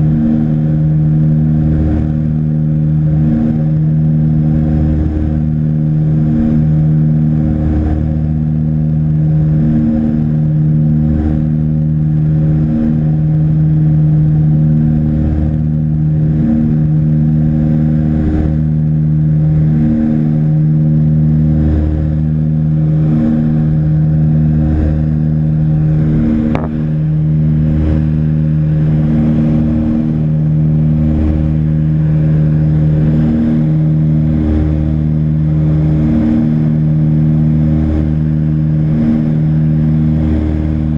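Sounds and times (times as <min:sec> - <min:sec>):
aircraft engine and propeller droning: 0:00.0 - 0:40.9.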